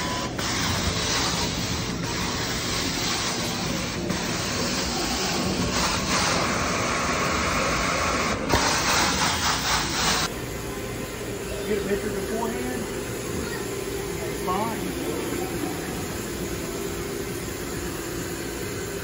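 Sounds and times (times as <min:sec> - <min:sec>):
carpet cleaning wand hissing: 0:00.0 - 0:10.3.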